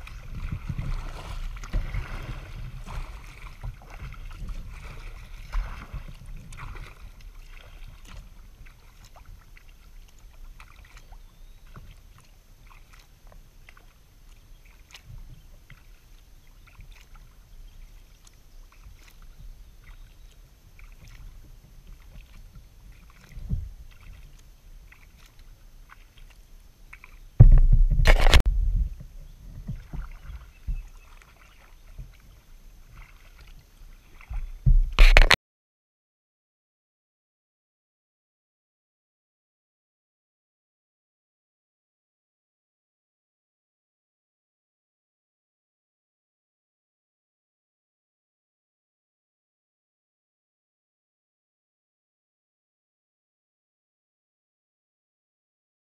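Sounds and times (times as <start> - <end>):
paddle drips and splashes: 0.0 - 35.4
water lapping at a hull: 0.0 - 35.4
loud rumbling knock: 27.4 - 29.0
low rumble: 27.4 - 29.4.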